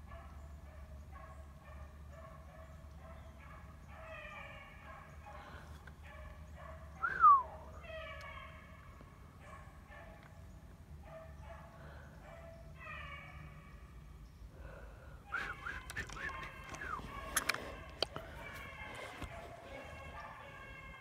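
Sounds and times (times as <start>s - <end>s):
dogs crying drawn-out: 3.9s - 8.9s, 11.4s - 13.8s, 15.2s - 21.0s.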